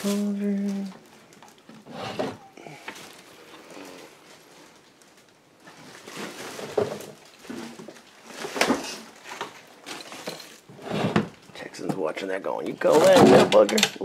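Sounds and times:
papers and plastic rustling: 0.0 - 10.7.

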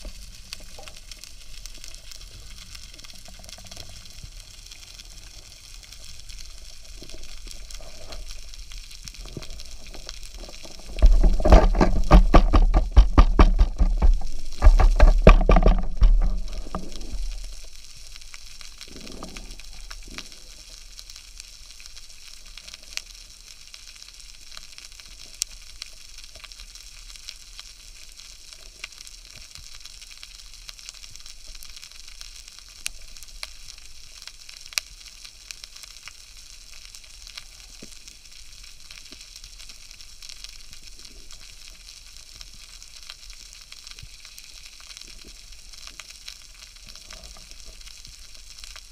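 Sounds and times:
sharp underwater clicks: 0.0 - 20.5
underwater rush of water: 0.0 - 22.2
fizzing crackle: 0.0 - 48.9.

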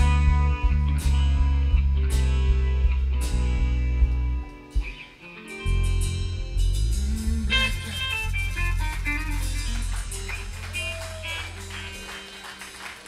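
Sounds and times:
loud held low bass note: 5.7 - 11.9.

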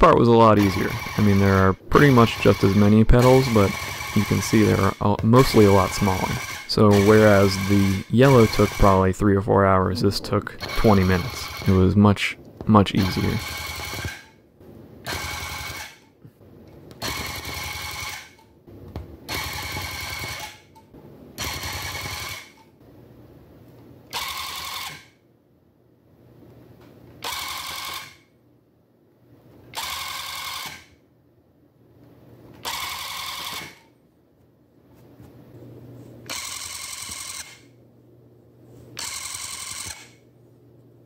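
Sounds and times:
electric tufting gun running: 0.0 - 12.0, 12.8 - 14.2, 15.1 - 15.9, 32.6 - 33.8, 36.3 - 37.7, 39.0 - 40.2.

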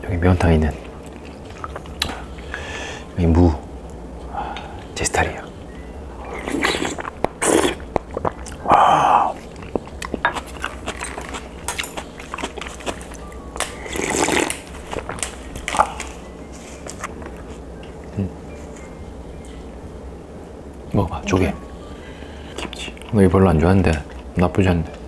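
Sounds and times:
chewing: 0.7 - 2.5, 6.2 - 18.0
slurping broth: 6.3 - 11.3, 13.8 - 14.6.

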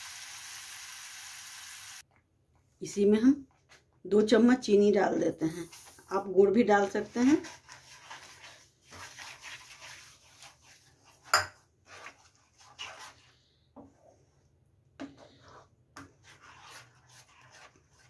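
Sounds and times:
spatula scraping a pan: 6.8 - 18.0.

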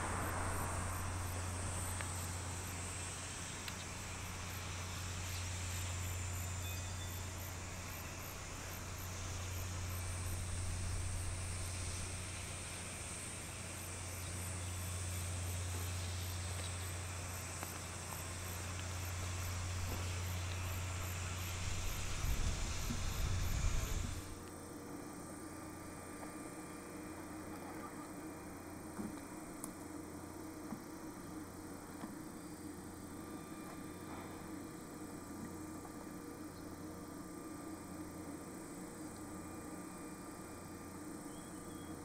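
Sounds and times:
insects chirping in pulses: 0.0 - 24.8
steady low hum: 0.0 - 42.0.

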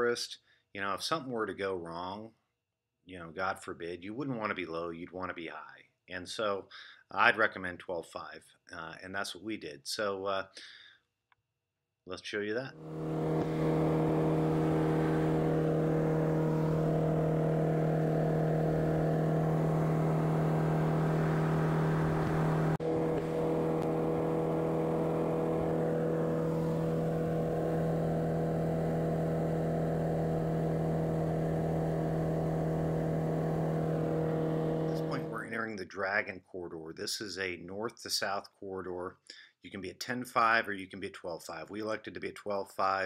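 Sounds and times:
aircraft engine drone in cockpit: 12.8 - 35.5.

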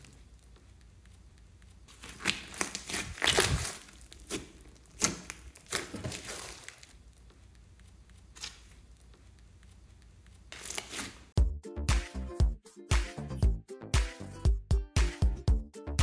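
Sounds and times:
slime squishing and popping: 1.9 - 7.0.

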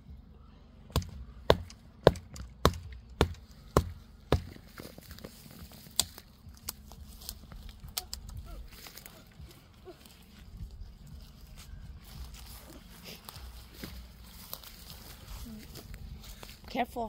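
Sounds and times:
hatchet chopping tree trunk: 0.9 - 6.8.

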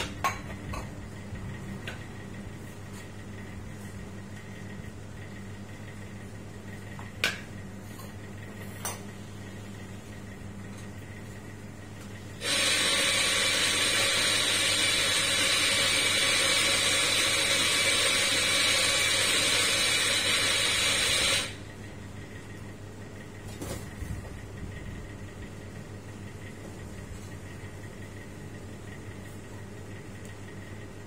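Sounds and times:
espresso machine hiss: 12.4 - 21.6.

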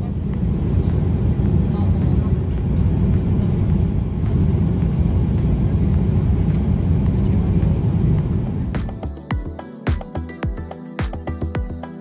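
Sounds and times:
airplane cabin engine rumble: 0.0 - 9.1.

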